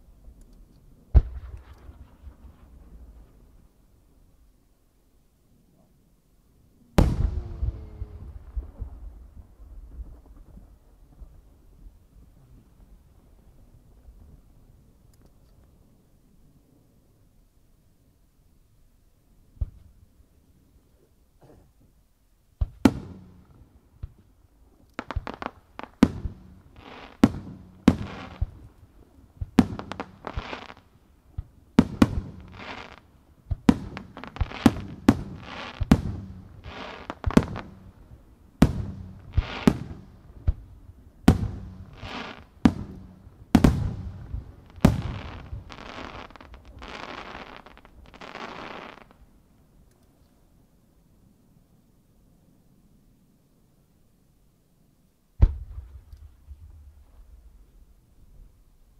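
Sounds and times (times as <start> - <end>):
firework hiss and crackle: 1.1 - 3.8, 22.6 - 49.3
firework shells booming: 7.0 - 9.1, 55.4 - 56.6.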